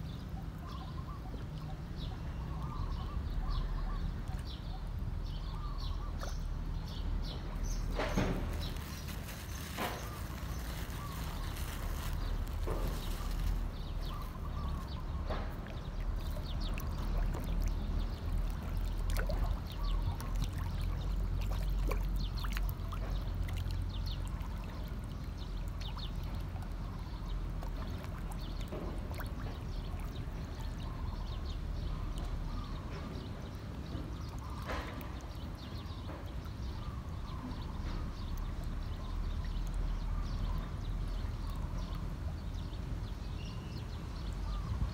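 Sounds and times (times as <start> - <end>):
fish splashing at water surface: 7.8 - 32.4.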